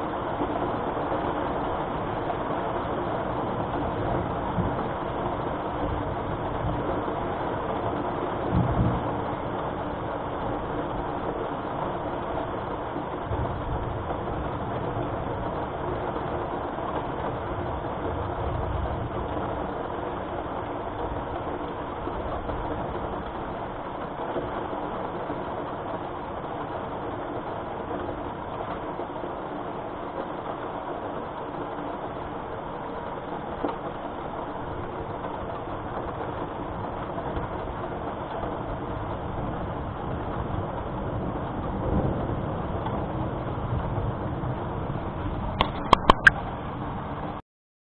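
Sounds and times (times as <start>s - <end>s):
thunder rumbling: 0.0s - 25.6s, 34.6s - 47.4s
steady rain: 0.0s - 47.4s.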